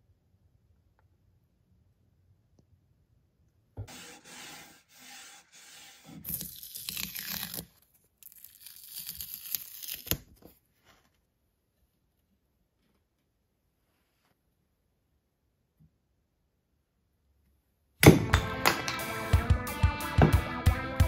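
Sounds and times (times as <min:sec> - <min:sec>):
masking tape peeling: 0:06.2 - 0:10.3.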